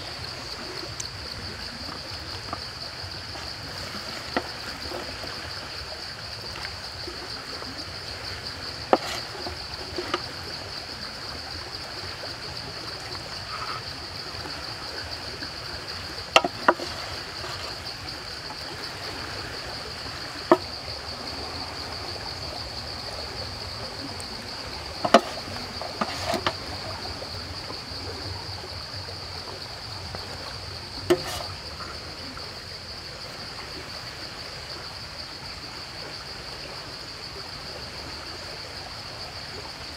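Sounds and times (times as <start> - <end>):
sharp clicks and knocks: 16.3 - 17.0, 25.0 - 26.6, 31.1 - 31.5.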